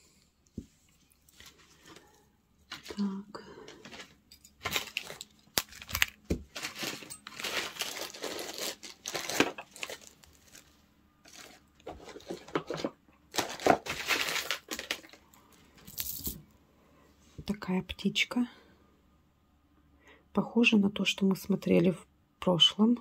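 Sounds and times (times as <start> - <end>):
packaging crinkling: 3.7 - 16.4.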